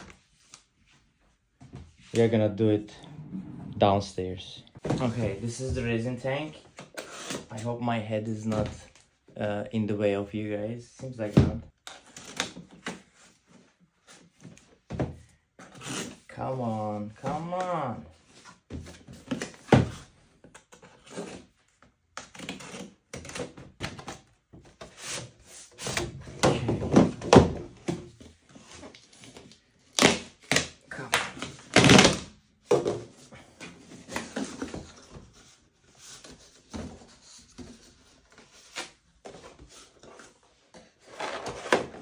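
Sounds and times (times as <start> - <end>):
cardboard boxes thunking and scraping: 4.8 - 5.9
packing tape tearing: 31.6 - 32.2.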